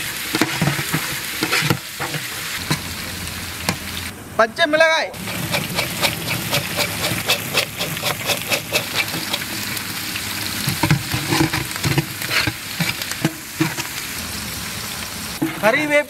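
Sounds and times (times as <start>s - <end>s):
aromatics sizzling in hot oil: 0.0s - 4.2s, 5.2s - 16.0s
stirring knocks: 5.2s - 9.6s, 10.6s - 13.9s.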